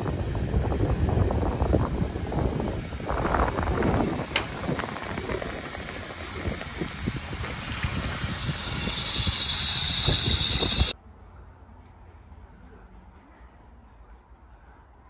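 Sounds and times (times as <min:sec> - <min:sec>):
steam hissing: 0:00.0 - 0:11.0
scattered knocks: 0:04.2 - 0:08.1.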